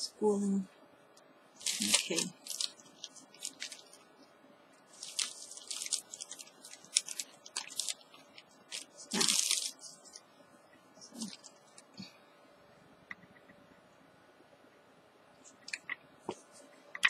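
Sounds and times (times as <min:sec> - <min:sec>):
plastic wrapping crinkling: 0:01.6 - 0:04.1, 0:04.8 - 0:10.2, 0:11.0 - 0:12.0.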